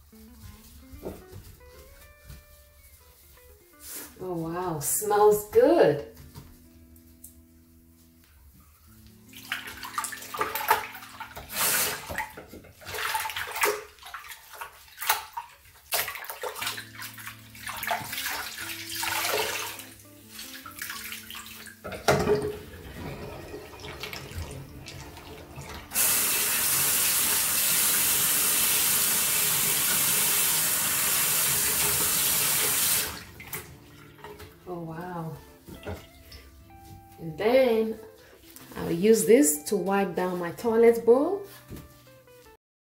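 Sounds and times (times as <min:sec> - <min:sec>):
cloth wiping a porcelain sink: 0:00.0 - 0:10.4
cloth being wrung: 0:06.6 - 0:21.8
tap water splashing on cloth: 0:09.3 - 0:22.6, 0:35.6 - 0:36.4
water pouring into drain: 0:09.4 - 0:15.4, 0:16.0 - 0:34.3.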